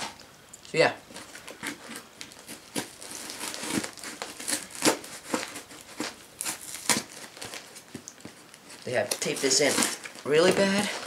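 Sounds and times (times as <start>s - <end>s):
cardboard ripping: 1.1s - 11.0s
scissors cutting packing tape: 1.2s - 7.7s.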